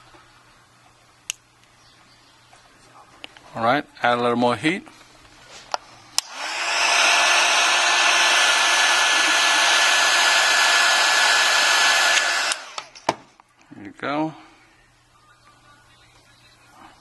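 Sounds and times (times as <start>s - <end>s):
heat gun switch click: 6.2s - 7.0s, 10.5s - 13.1s
heat gun blowing air: 6.2s - 13.1s.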